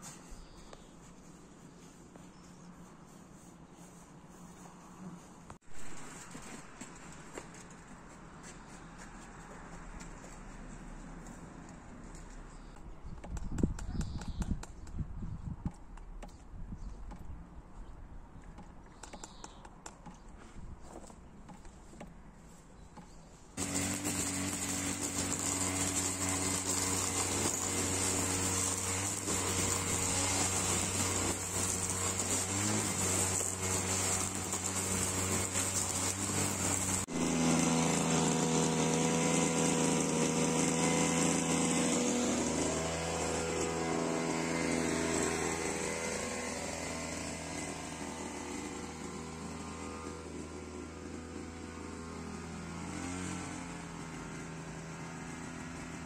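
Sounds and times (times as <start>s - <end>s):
grass trimmer engine cutting grass: 23.6s - 56.0s.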